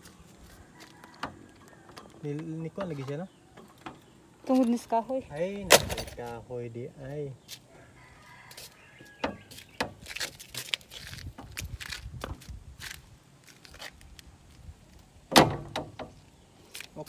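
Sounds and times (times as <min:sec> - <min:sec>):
wooden gate clicks and scrapes: 0:00.9 - 0:05.1, 0:05.7 - 0:06.4, 0:15.3 - 0:16.3.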